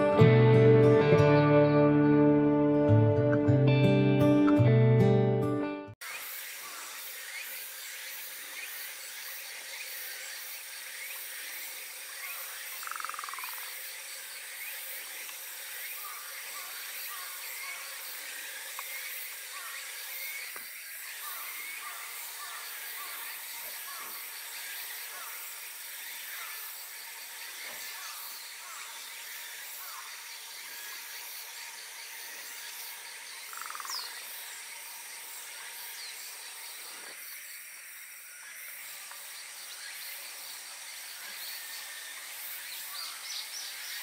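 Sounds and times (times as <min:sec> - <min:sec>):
high-pitched drone: 0:00.0 - 0:05.1
short chirping calls: 0:33.4 - 0:34.2.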